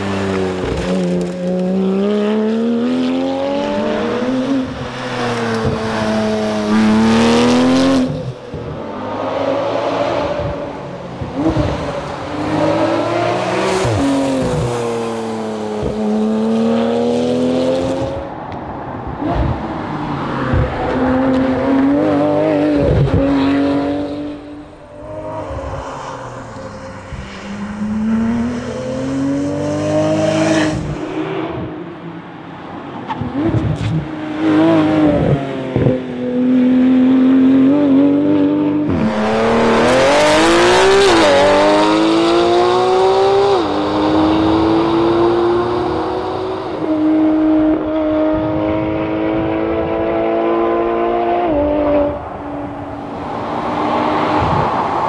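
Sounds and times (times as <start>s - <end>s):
car engine revving hard: 34.4s - 55.0s.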